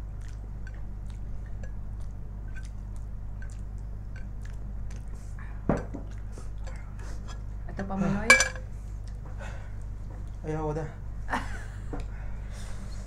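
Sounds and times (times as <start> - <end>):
chewing: 0.0 - 7.5, 8.9 - 10.4
steady low hum: 0.0 - 13.0.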